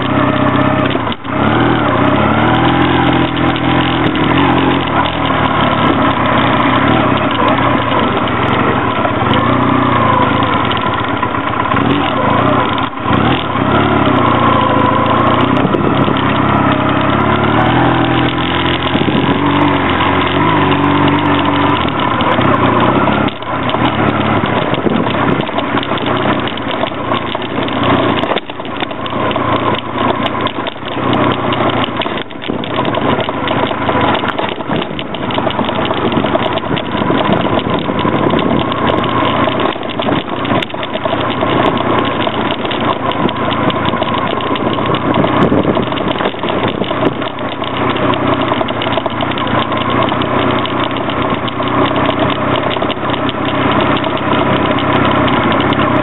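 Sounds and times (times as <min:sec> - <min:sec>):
motorcycle engine running: 0:00.0 - 0:56.0
wind and road noise: 0:00.0 - 0:56.0.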